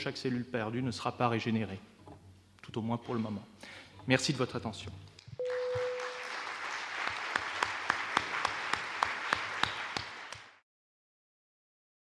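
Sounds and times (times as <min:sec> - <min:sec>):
short steady tone: 0:05.4 - 0:06.2
audience applauding: 0:05.4 - 0:10.6.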